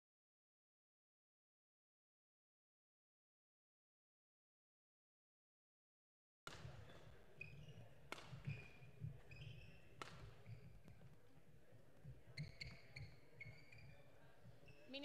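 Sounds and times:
racket hitting shuttlecock: 6.5s - 11.1s
shoes squeaking on court floor: 6.5s - 15.0s.

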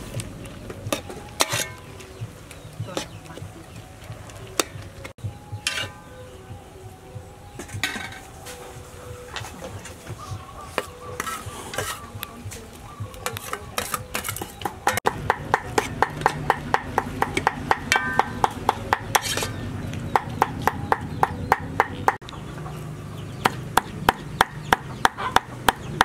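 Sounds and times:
metal spatula scraping a pot: 0.9s - 1.9s, 5.6s - 6.1s, 11.1s - 12.2s, 13.2s - 15.0s, 19.1s - 19.6s
metal utensils clinking: 0.9s - 1.9s.

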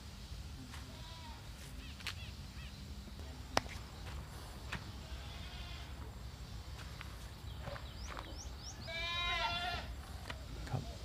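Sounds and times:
goats bleating: 5.0s - 6.0s, 8.9s - 9.9s.

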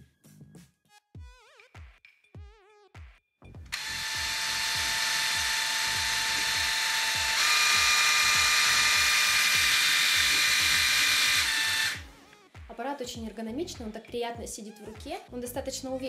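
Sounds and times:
epilator whining: 3.7s - 12.1s.

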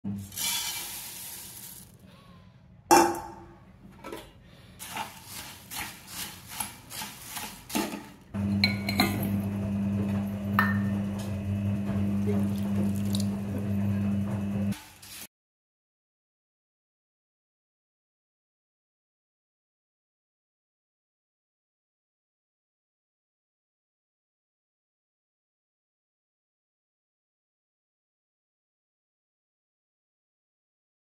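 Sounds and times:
metal spatula scraping pan: 0.1s - 1.9s, 4.8s - 9.3s
water pouring into pot: 0.1s - 1.9s, 10.2s - 15.3s
puffed rice poured into pan: 0.1s - 2.0s, 4.8s - 7.9s, 14.7s - 15.3s.

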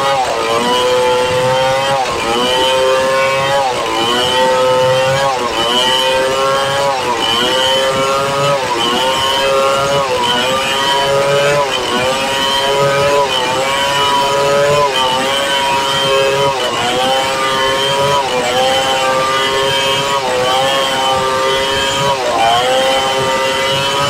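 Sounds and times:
chainsaw cutting through log: 0.0s - 24.0s.

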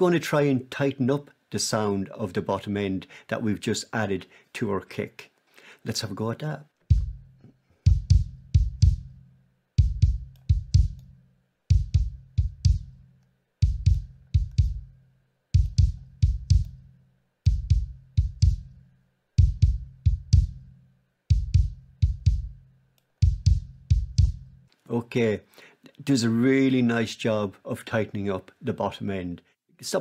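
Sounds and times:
kick drum with beater click: 6.9s - 9.2s, 9.8s - 13.0s, 13.6s - 15.0s, 15.6s - 16.9s, 17.5s - 18.8s, 19.4s - 22.6s, 23.2s - 24.6s.

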